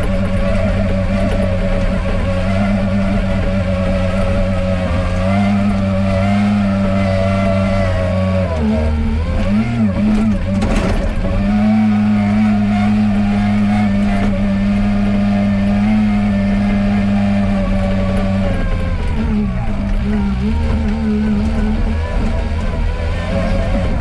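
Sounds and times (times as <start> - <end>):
diesel engine running: 0.0 - 24.0
short clatter: 10.1 - 11.4.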